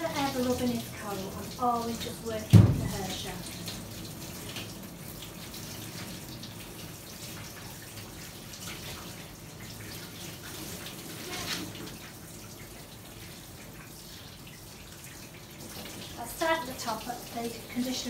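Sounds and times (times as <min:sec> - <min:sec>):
shower water spraying on dog: 0:00.0 - 0:18.0
water splashing in metal bath: 0:00.0 - 0:18.0.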